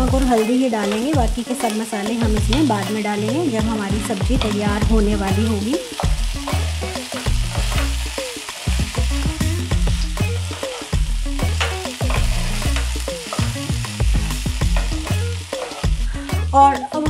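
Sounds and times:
vegetables sizzling in oil: 0.0s - 17.0s
wooden spatula scraping pan: 14.8s - 16.0s.

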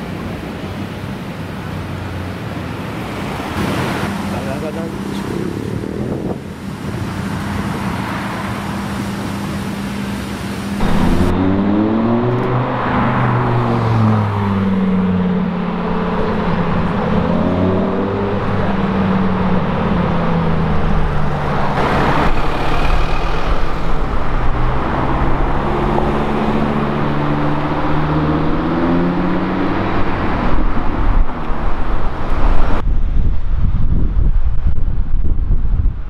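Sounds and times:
city traffic noise: 0.0s - 36.0s
wind buffeting microphone: 4.8s - 7.9s, 10.8s - 36.0s
sports car driving past: 10.8s - 31.0s
sports car engine accelerating: 10.8s - 32.8s.

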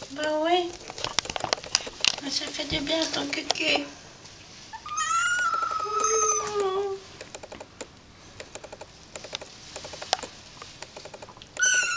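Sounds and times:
kitten meowing: 4.9s - 6.8s, 11.6s - 11.9s
soft small clicks: 5.4s - 11.9s.

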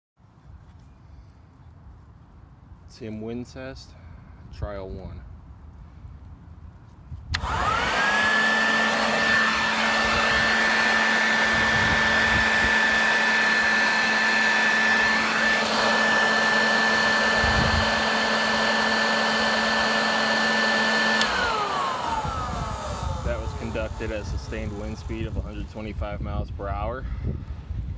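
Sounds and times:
rush of air: 7.3s - 18.1s
electric blower motor whine: 7.3s - 26.0s.

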